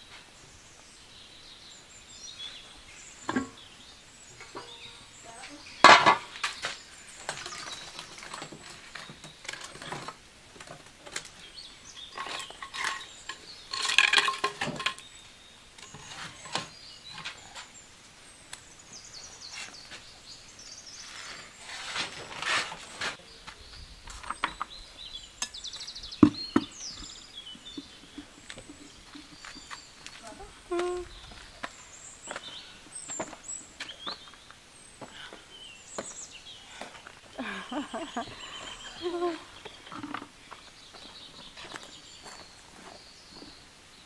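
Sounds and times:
firewood scraping and knocking: 0:05.8 - 0:15.2, 0:21.0 - 0:24.8, 0:25.4 - 0:34.4, 0:39.6 - 0:43.5.

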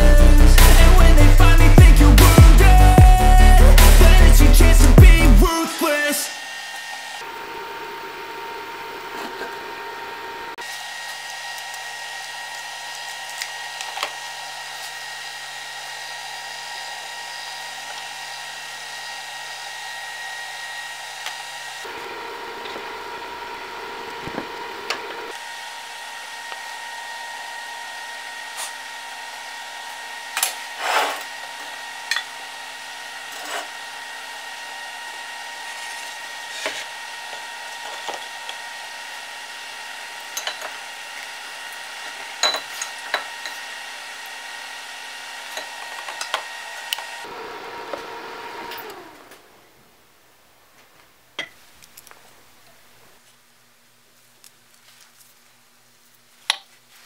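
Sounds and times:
high electrical whine: 0:00.0 - 0:16.2
fan spinning down: 0:00.0 - 0:50.0
welder fan noise: 0:00.0 - 0:57.0.

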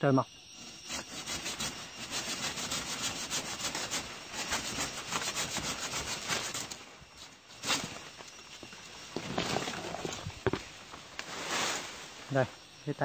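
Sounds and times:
hand saw cutting tree stem: 0:00.6 - 0:06.8.

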